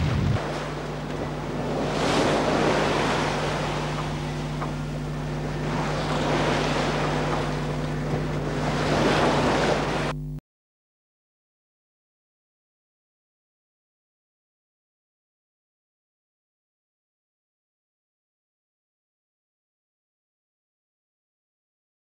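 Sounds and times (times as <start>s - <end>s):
wind buffeting microphone: 0.0s - 4.6s
sea splashing along a hull: 0.0s - 10.4s
steady low hum: 0.0s - 10.4s.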